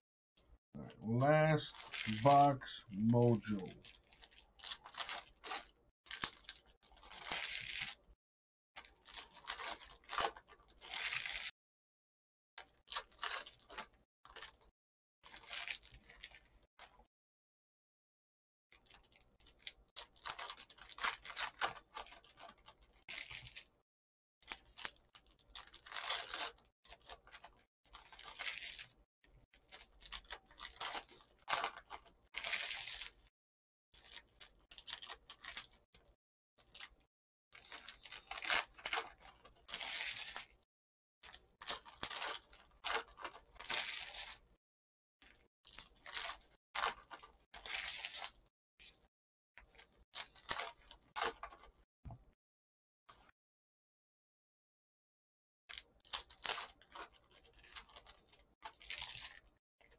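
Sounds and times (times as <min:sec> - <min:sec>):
foil wrappers crinkling and tearing: 0:03.4 - 0:08.0, 0:08.8 - 0:11.5, 0:12.6 - 0:14.6, 0:15.2 - 0:16.6, 0:18.8 - 0:23.7, 0:24.4 - 0:29.0, 0:29.6 - 0:33.3, 0:34.0 - 0:35.8, 0:37.6 - 0:40.6, 0:41.2 - 0:44.4, 0:45.2 - 0:51.7, 0:55.7 - 0:59.9.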